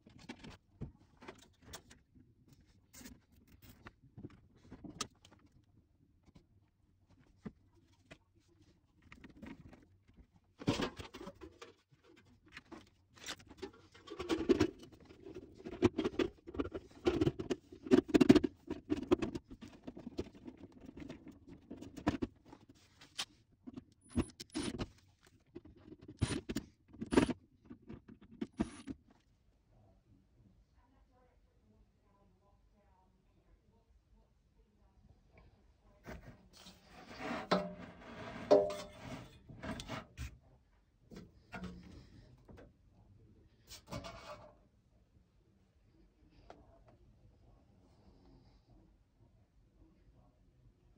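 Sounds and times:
metal panel knocks and scrapes: 0:37.2 - 0:40.1.

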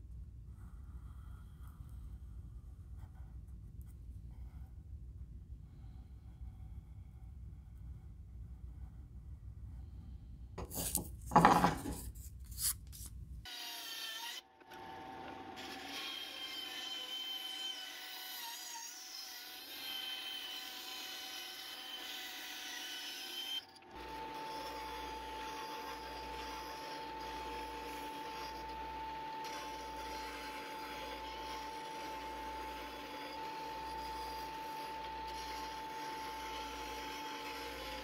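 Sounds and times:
pencil scratching on wood: 0:10.6 - 0:13.1
band saw cutting wood: 0:13.5 - 0:38.0.

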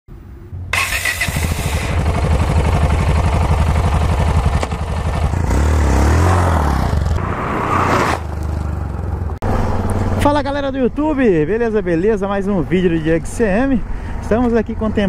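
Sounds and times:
motorcycle engine revving: 0:00.7 - 0:10.7.

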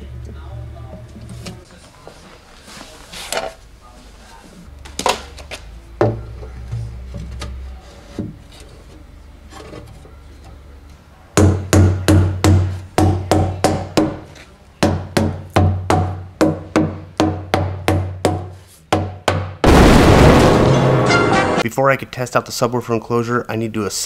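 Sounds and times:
rubber mallet knocking wooden panel: 0:14.8 - 0:19.6
background music: 0:20.3 - 0:21.7.

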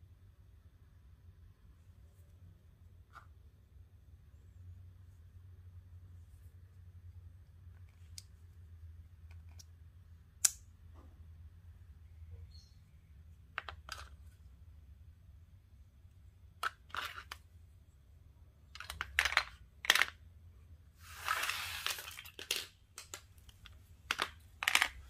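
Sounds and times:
small items clicking and tapping: 0:13.5 - 0:14.4, 0:16.6 - 0:17.5, 0:18.7 - 0:20.2, 0:21.3 - 0:25.0.

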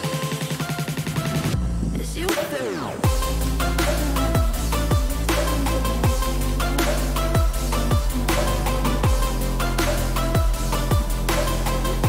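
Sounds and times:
electronic dance music: 0:00.0 - 0:12.0
falling bass swoops: 0:02.9 - 0:12.0.

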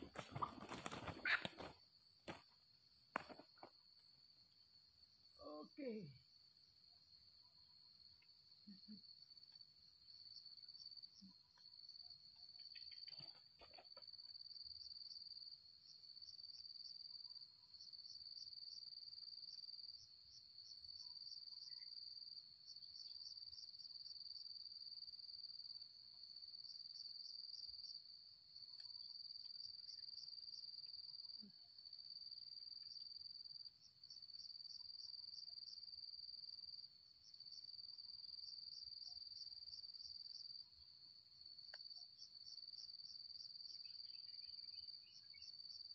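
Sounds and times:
insects trilling: 0:00.0 - 0:02.5, 0:03.2 - 0:45.9
rustle: 0:00.0 - 0:02.5.

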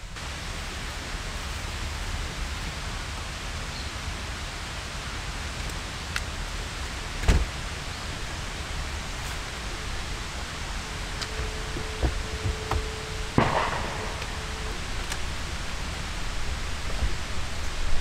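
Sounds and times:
wind rumbling on microphone: 0:00.0 - 0:18.0
sharp thump: 0:11.3 - 0:15.4.

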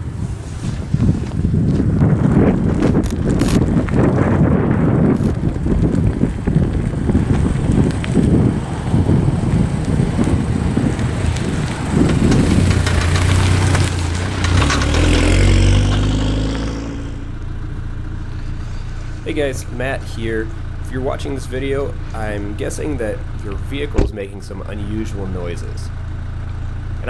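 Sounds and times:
wind buffeting microphone: 0:00.0 - 0:24.6
car engine passing by: 0:08.0 - 0:17.5.

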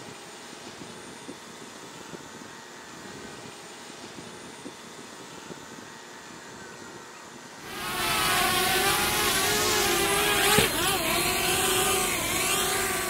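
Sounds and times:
drone propellers whining: 0:04.6 - 0:13.0
drone thudding on roof: 0:07.7 - 0:13.0.

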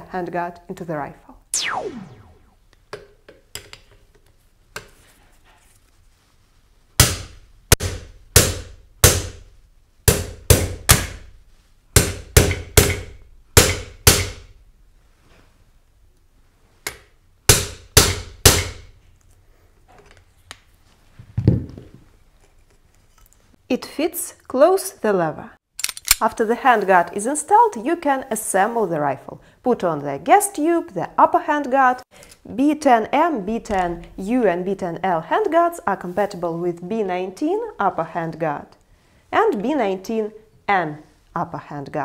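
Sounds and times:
hammer striking metal: 0:12.0 - 0:14.4.

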